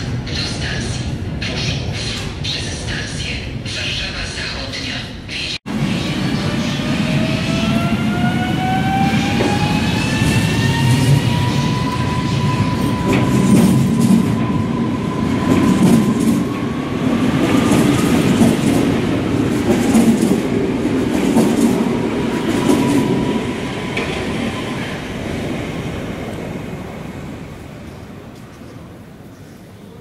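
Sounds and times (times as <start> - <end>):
train wheels clacking over rails: 8.3 - 14.6, 15.2 - 25.6.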